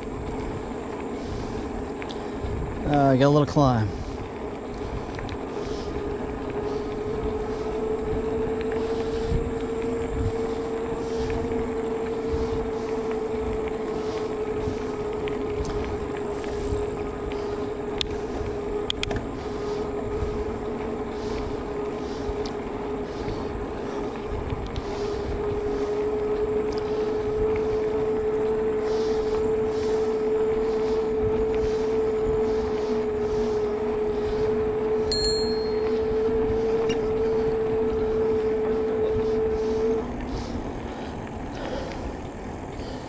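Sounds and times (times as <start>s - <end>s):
wind: 0.0s - 43.0s
brief high ring: 35.1s - 36.0s.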